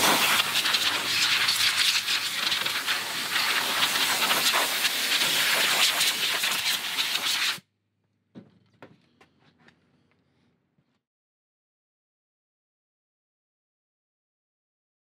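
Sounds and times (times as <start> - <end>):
compressed air blow gun hissing: 0.0 - 7.6.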